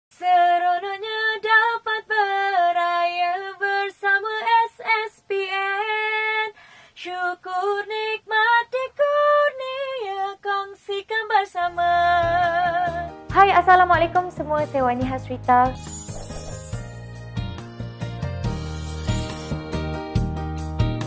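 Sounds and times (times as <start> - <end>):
woman singing unaccompanied: 0.1 - 15.7.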